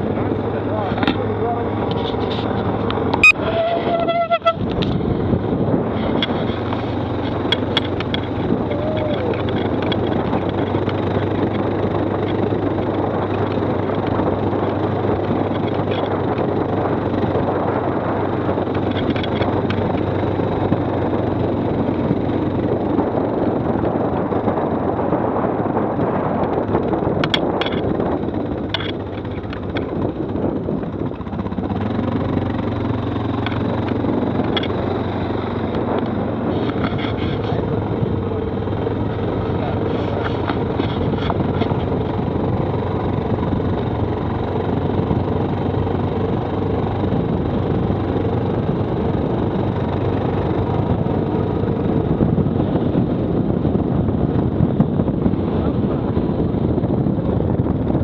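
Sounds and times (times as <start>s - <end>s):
quad bike engine running: 0.0s - 58.0s
short sharp tone: 3.2s - 4.6s.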